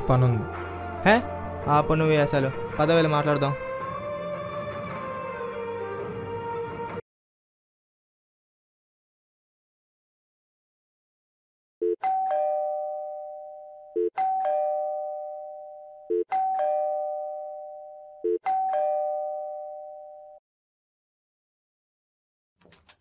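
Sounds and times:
electric doorbell chiming ding-dong: 0:12.0 - 0:20.4.

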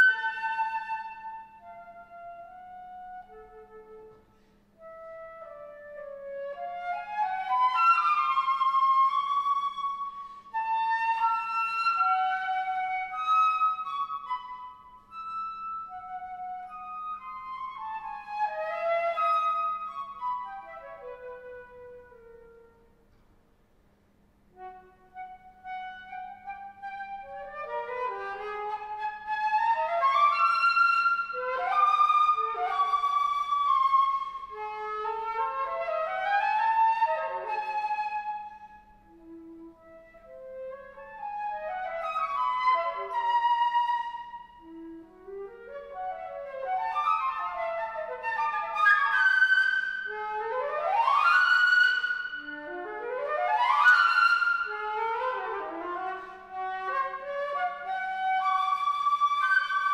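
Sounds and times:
solo flute playing: 0:00.0 - 0:23.2, 0:24.5 - 0:59.9.

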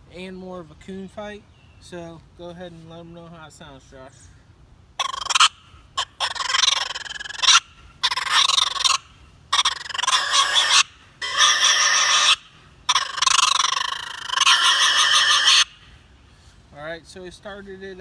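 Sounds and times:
raccoon call squalls: 0:05.0 - 0:16.5.

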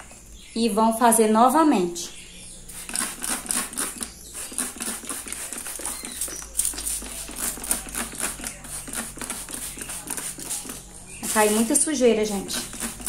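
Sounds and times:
spray bottle spritzing: 0:02.7 - 0:13.0.

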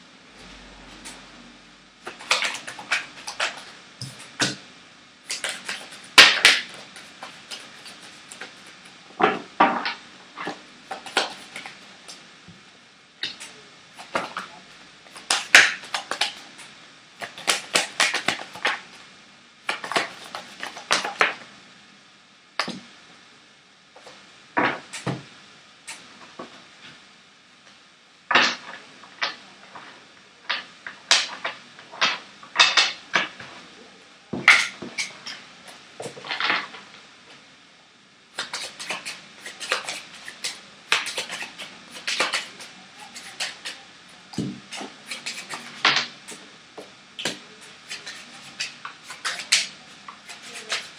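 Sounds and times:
playing cards being shuffled: 0:02.0 - 0:04.6, 0:05.3 - 0:12.2, 0:13.2 - 0:19.0, 0:19.7 - 0:21.4, 0:24.0 - 0:25.2, 0:38.4 - 0:46.5, 0:47.2 - 0:50.9
cards tapped on wooden table: 0:15.2 - 0:16.5, 0:17.2 - 0:18.8.

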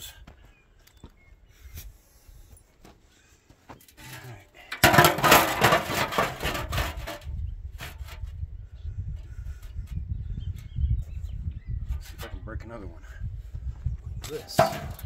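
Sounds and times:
metal scraping on metal: 0:03.9 - 0:08.3
metal drum set down: 0:04.8 - 0:07.3, 0:14.5 - 0:15.0.

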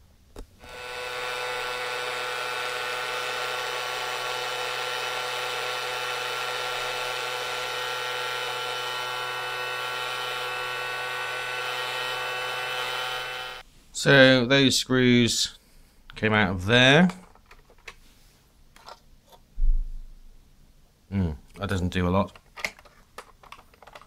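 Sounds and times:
small vacuum motor whining: 0:00.6 - 0:13.6.

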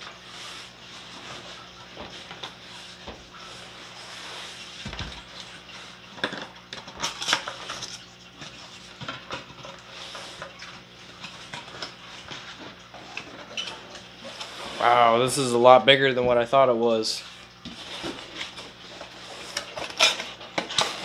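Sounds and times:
cardboard scraping and rustling: 0:17.4 - 0:21.0.

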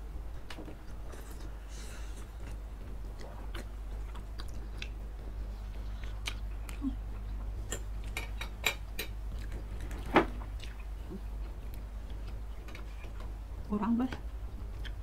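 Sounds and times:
chewing with wet mouth clicks: 0:02.4 - 0:07.4, 0:08.0 - 0:10.0, 0:10.6 - 0:13.3, 0:14.6 - 0:15.0.

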